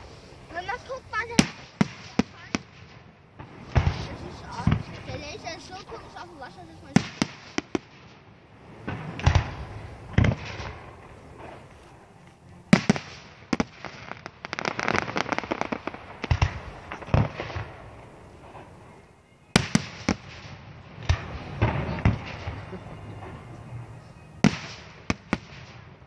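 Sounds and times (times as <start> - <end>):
firework shells bursting: 12.7 - 18.8.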